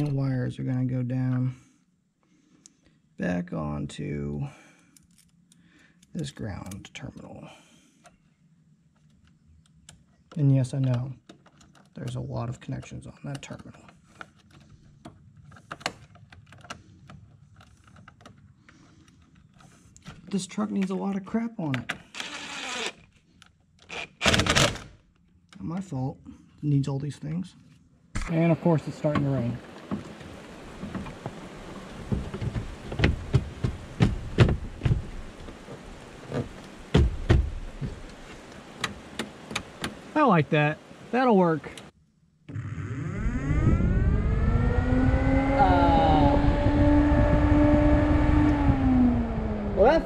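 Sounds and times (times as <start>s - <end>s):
faint steady hiss: 25.2s - 42.5s
sharp taps and knocks in a cab: 32.0s - 35.6s, 36.3s - 38.2s, 38.8s - 40.0s.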